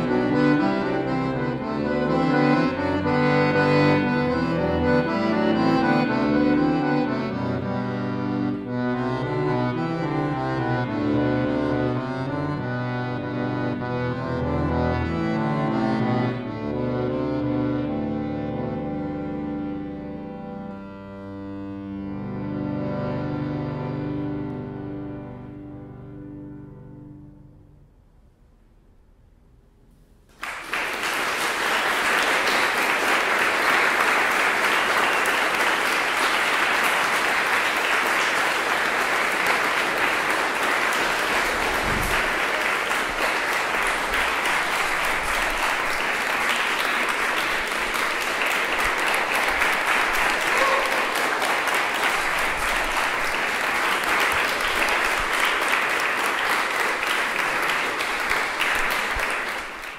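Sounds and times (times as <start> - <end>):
accordion piece: 0.0 - 27.9, 30.8 - 59.9
audience applauding: 30.3 - 59.9.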